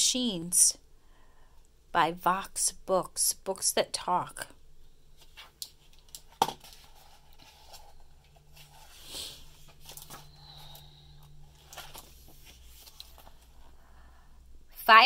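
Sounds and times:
faint low hum: 0.0s - 15.0s
soft paper rustles: 5.1s - 13.8s.

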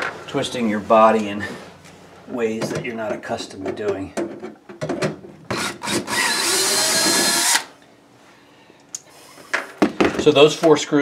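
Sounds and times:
cordless drill whining: 5.5s - 7.7s.

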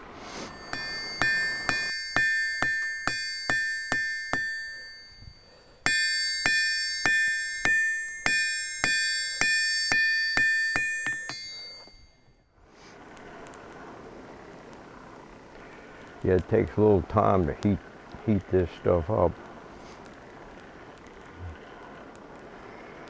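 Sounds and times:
low steady rush: 0.0s - 23.0s
hammer ringing on anvil: 0.4s - 12.3s.

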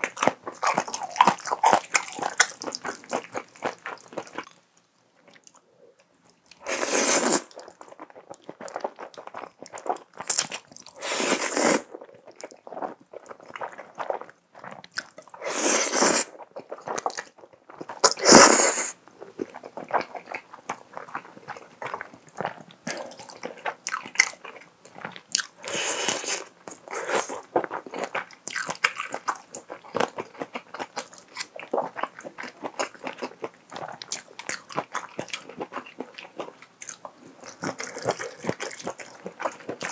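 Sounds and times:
wet chewing: 0.0s - 4.6s, 11.9s - 15.4s, 19.2s - 39.9s
slurping noodles: 6.6s - 7.5s, 11.0s - 11.9s, 15.4s - 16.4s, 25.6s - 27.4s.

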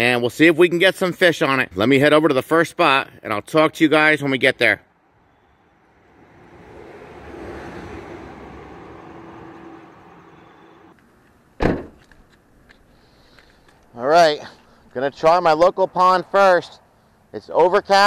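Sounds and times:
car passing by: 5.4s - 11.0s
car door shutting: 11.6s - 12.1s.

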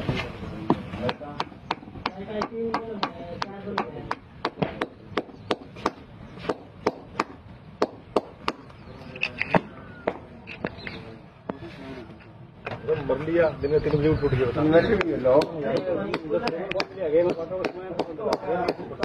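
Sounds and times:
hammer striking concrete: 0.7s - 8.7s, 15.3s - 19.0s.

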